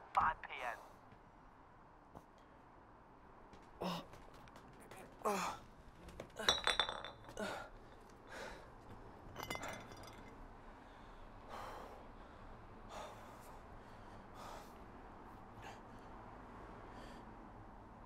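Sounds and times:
man gasping and breathing hard: 3.8 - 4.2, 7.3 - 8.8.

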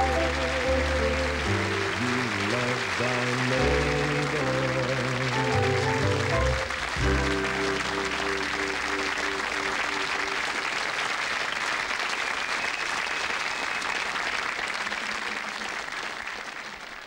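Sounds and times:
closing theme music: 0.0 - 10.7
studio audience applauding: 0.0 - 17.0.

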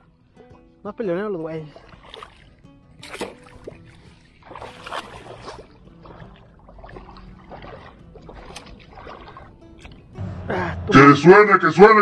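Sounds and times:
fish splashing in water: 1.8 - 10.0.

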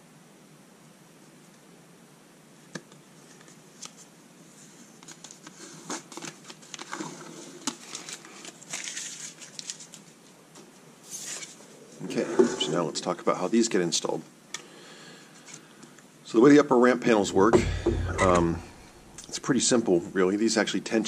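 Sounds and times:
paper rustling: 3.2 - 11.7
paper crinkling and tearing: 5.0 - 10.2.

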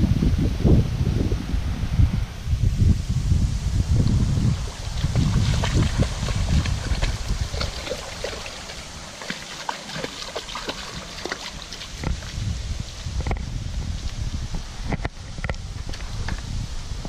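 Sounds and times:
wind rumble on microphone: 0.0 - 17.0
dog splashing through water: 4.3 - 12.5.

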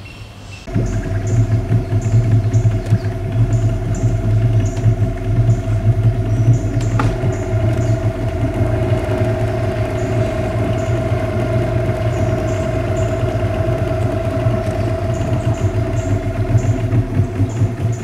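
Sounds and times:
boat motor humming: 0.6 - 18.0.

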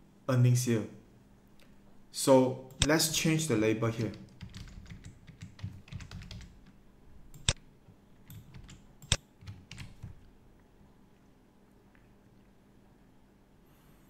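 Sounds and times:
keyboard typing: 4.0 - 7.6, 8.2 - 10.3.

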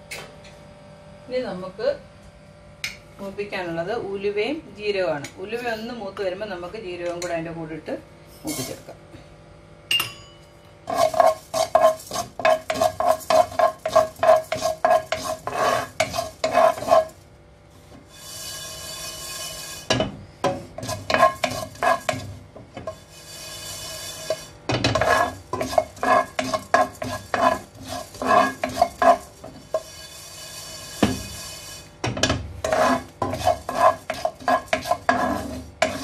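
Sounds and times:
spatula scraping seeds in pan: 10.8 - 36.0.

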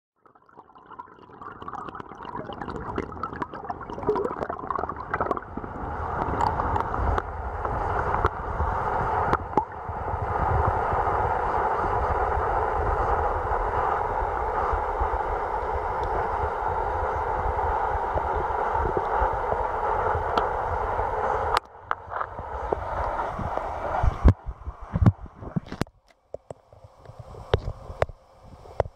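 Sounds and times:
bubbly clicks: 0.2 - 7.3
underwater water rushing: 0.2 - 25.8.

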